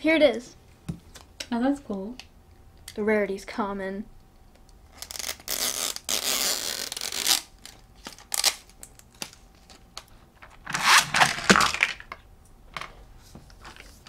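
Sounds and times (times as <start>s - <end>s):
plastic packaging tearing: 4.9s - 9.4s, 10.6s - 12.0s
ripcord zipping through toy launcher: 10.6s - 11.7s.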